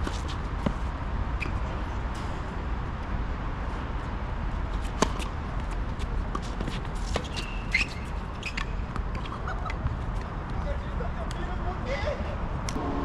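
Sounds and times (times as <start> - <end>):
footsteps on court: 0.0 - 1.7, 4.6 - 11.5
shoe squeak: 0.0 - 2.3, 6.0 - 10.3
tennis ball strikes: 4.8 - 5.4.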